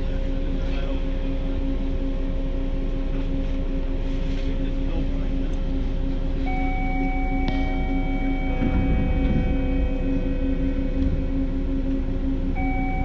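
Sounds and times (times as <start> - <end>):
electrical hum: 0.0 - 13.0
low droning tones: 0.0 - 13.0
held electronic tone: 6.4 - 13.0.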